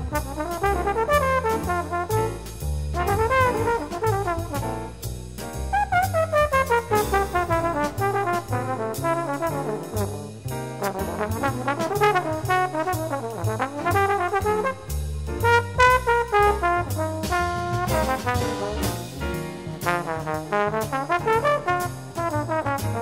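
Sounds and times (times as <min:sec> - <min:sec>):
jazz quintet playing swing: 0:00.0 - 0:23.0
walking bass: 0:00.0 - 0:23.0
horn melodic lines: 0:03.0 - 0:04.5, 0:20.0 - 0:21.8.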